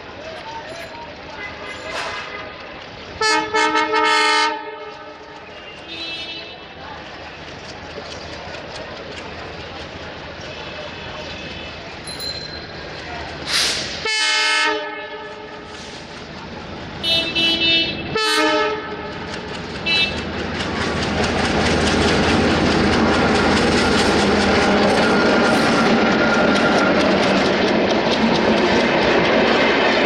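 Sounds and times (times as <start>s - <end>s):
locomotive horn blasts: 3.2s - 6.6s, 14.0s - 15.7s, 17.0s - 19.2s, 19.9s - 20.2s
locomotive engine: 4.6s - 14.1s, 14.8s - 30.0s
train wheels clattering: 18.9s - 30.0s.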